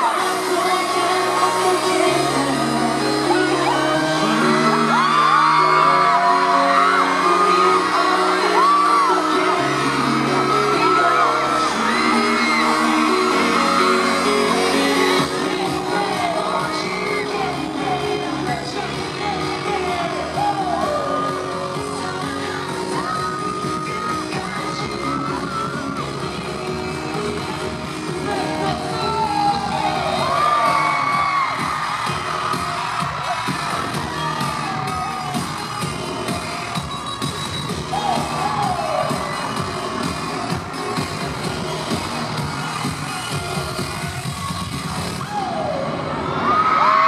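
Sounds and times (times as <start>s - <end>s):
person singing into microphone: 0.0s - 25.7s
fans screaming and whooping: 0.0s - 47.0s
live pop song over speakers: 0.0s - 47.0s
synth bass notes: 0.0s - 47.0s.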